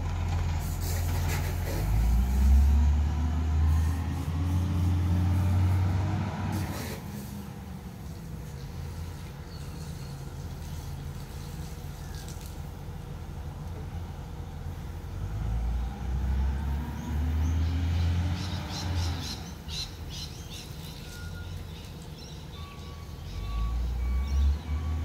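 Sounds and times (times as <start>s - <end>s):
garbage truck engine rumbling: 0.0s - 25.0s
birds chirping: 8.3s - 12.6s, 16.8s - 25.0s.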